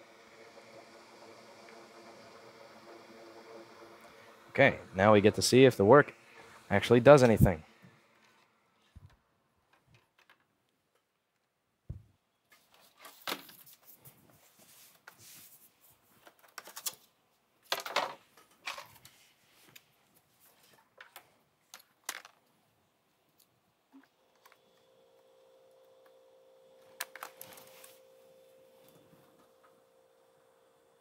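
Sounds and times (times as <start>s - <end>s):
hands handling small parts: 8.2s - 11.5s, 20.5s - 22.5s.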